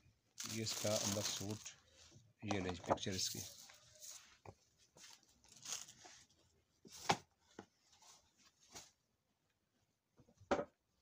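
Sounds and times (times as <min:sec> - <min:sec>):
cloth and paper rustling: 0:00.3 - 0:09.0.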